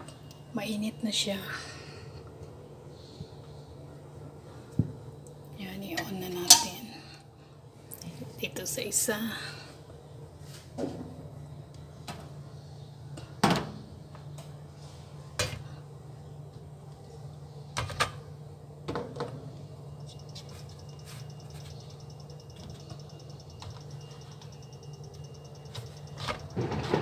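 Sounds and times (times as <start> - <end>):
steady low hum: 0.0 - 27.0
faint high whine: 14.1 - 27.0.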